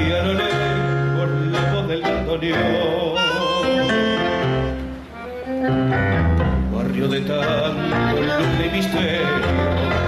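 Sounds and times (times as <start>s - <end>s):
man singing with vibrato: 0.0s - 4.7s, 6.6s - 10.0s
piano: 0.0s - 10.0s
violins: 3.2s - 10.0s.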